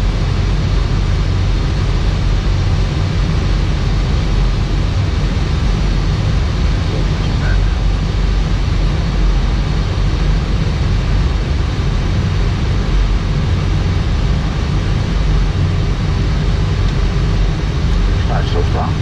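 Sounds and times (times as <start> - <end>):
airliner cockpit rush: 16.7 - 19.0.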